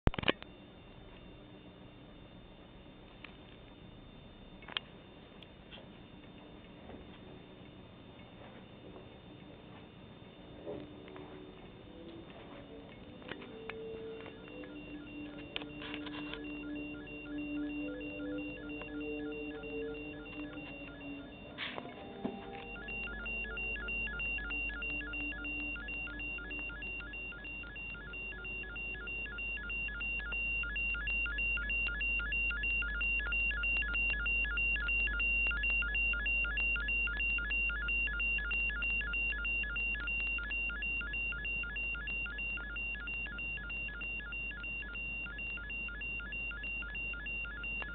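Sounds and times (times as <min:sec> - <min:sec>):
low hum: 0:00.3 - 0:32.1
low electronic tones: 0:06.2 - 0:47.9
steady high tone: 0:10.5 - 0:32.2
rapid electronic beeps: 0:11.0 - 0:47.9.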